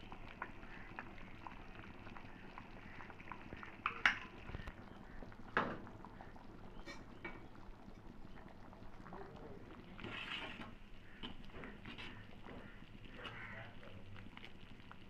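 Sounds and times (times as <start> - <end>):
stew bubbling in a pot: 0.0 - 15.0
knocks against a pot: 5.5 - 5.8.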